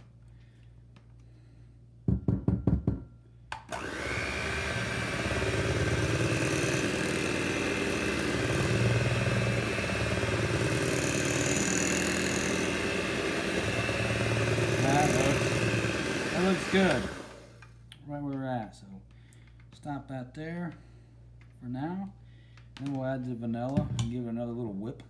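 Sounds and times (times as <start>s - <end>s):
electric hand mixer whining: 3.7s - 17.6s.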